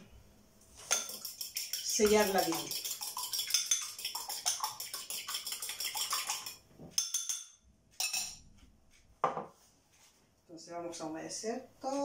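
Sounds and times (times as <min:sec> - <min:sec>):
utensil clinking against bowl: 0:00.8 - 0:08.4.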